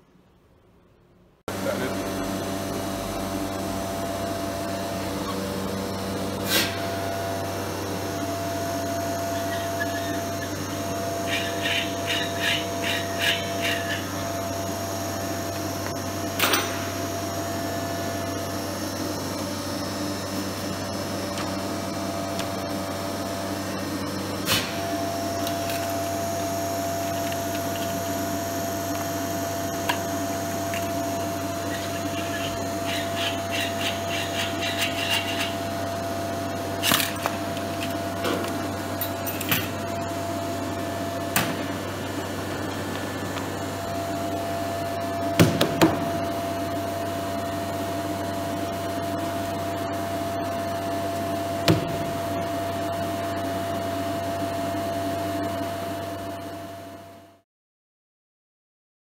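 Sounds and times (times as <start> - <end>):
vacuum pump droning: 1.5 - 57.4.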